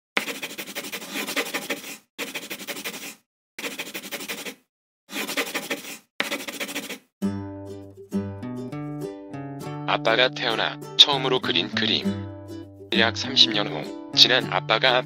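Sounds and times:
scratchy scribbling strokes: 0.2 - 7.1.

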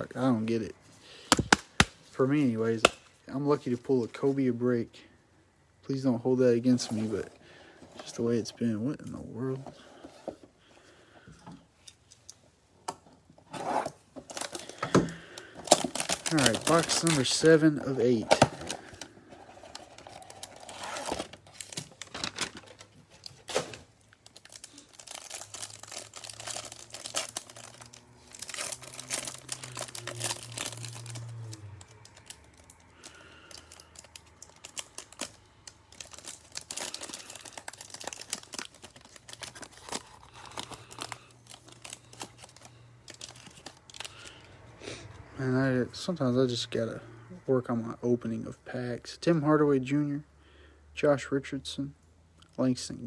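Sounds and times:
cellophane wrappers crinkling and tearing: 14.3 - 44.5.

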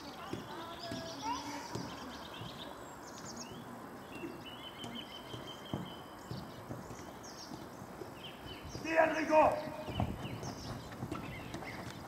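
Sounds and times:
small birds chirping: 0.0 - 12.0
soft thumps: 4.8 - 8.0.

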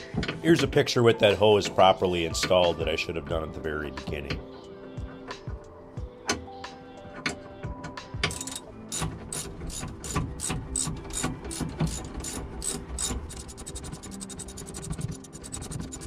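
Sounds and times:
ratchet wrench clicking: 8.3 - 16.0.

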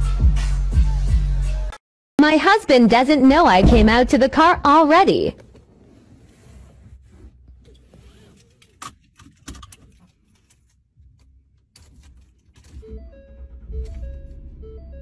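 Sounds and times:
low rumble: 3.3 - 4.6.

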